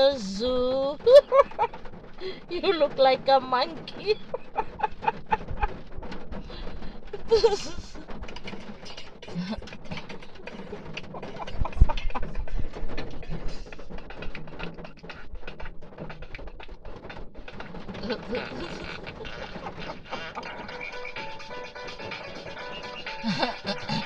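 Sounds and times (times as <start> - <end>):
small clicks and knocks: 3.6 - 23.2
indistinct voices: 6.5 - 16.8, 17.4 - 24.0.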